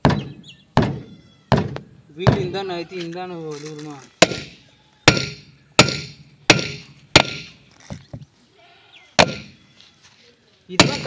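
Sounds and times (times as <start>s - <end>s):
hammer striking metal: 4.2s - 7.6s, 9.2s - 9.5s.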